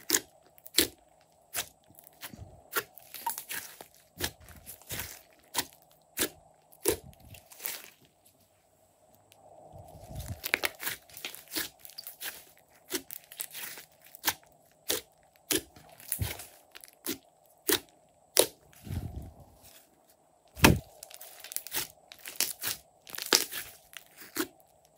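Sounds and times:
dull thuds: 20.6s - 20.9s.

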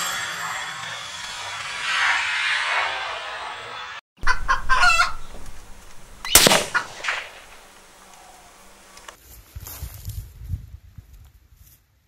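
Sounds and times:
clucking: 4.2s - 5.3s
rifle shot crack: 6.2s - 8.6s.

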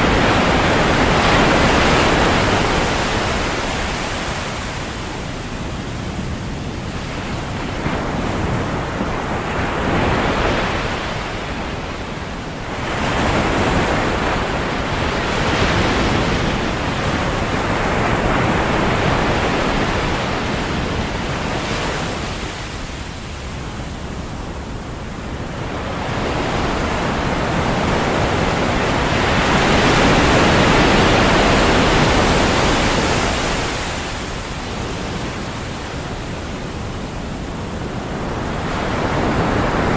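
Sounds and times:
waves breaking on a sandy shore: 0.0s - 39.9s.

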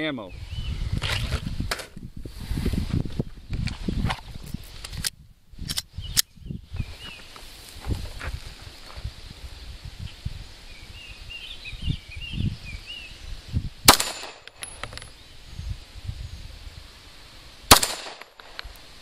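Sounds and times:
pistol shots: 13.9s - 14.7s, 17.7s - 18.6s.

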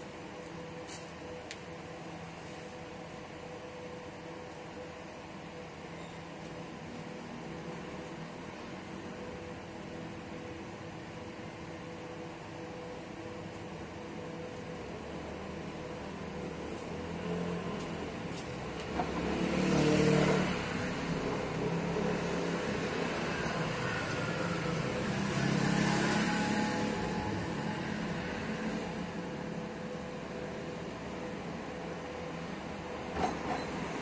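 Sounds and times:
vehicles passing by: 14.9s - 33.1s.

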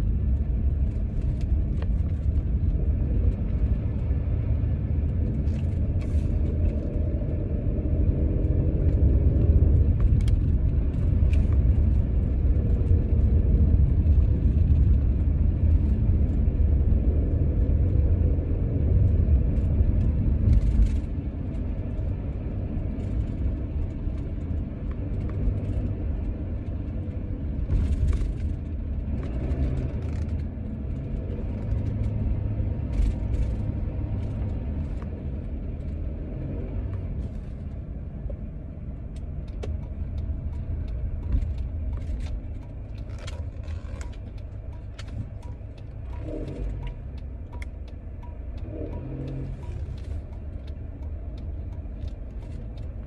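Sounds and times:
car cabin rumble: 0.0s - 53.0s.

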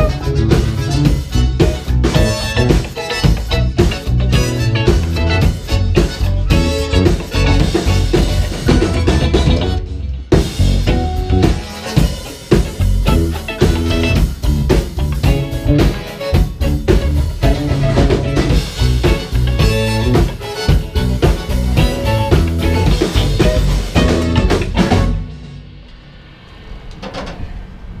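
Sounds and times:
bass guitar: 0.0s - 25.8s
distorted electric guitar: 0.0s - 25.8s
drum kit: 0.0s - 27.1s
low rumble: 21.0s - 28.0s.

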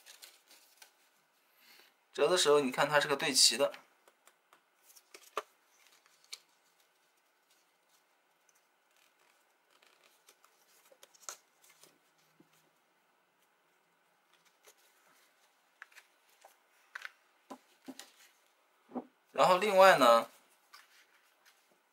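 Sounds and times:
cardstock crackling and folding: 0.0s - 1.2s, 4.8s - 12.7s, 14.2s - 18.4s.

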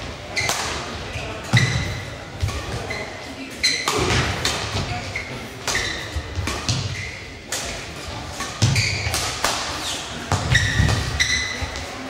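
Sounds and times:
shoes squeaking on court: 0.3s - 12.0s
racket hitting shuttlecock: 0.4s - 0.8s, 3.7s - 4.9s, 5.6s - 11.4s.

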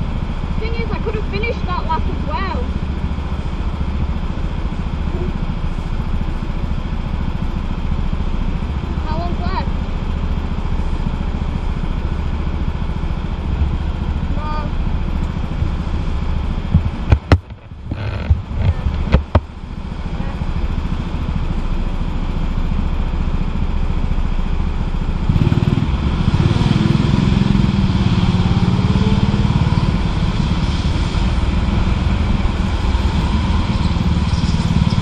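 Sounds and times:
go-kart engine running: 0.0s - 35.0s
sharp knocks: 16.7s - 19.5s.

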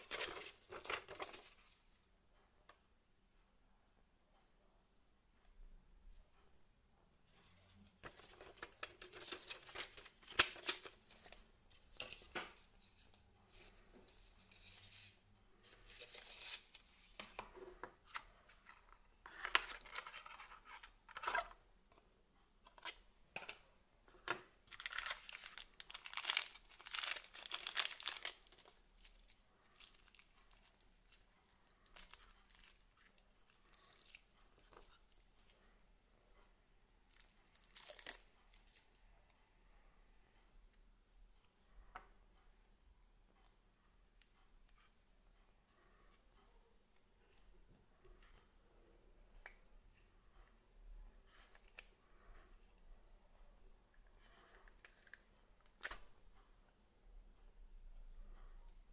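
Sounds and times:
paper leaflet rustling: 0.0s - 1.6s
plastic bag crinkling: 24.7s - 34.2s.

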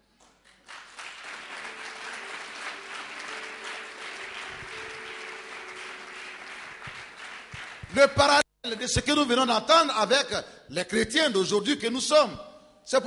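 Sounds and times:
congregation applauding: 0.4s - 8.4s.

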